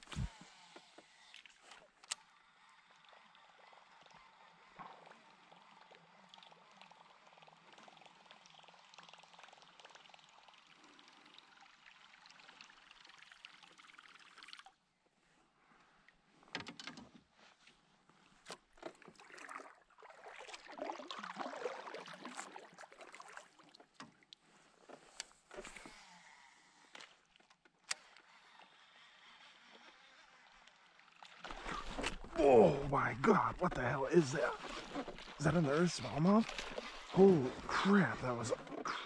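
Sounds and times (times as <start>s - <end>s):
paddle splashing water: 18.7s - 25.0s, 28.0s - 39.0s
faint steady hiss: 31.6s - 39.0s.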